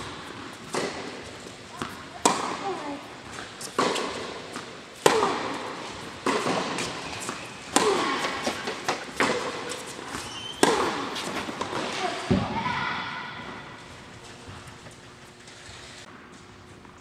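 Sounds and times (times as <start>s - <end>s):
tennis ball struck by rackets: 0.1s - 12.5s.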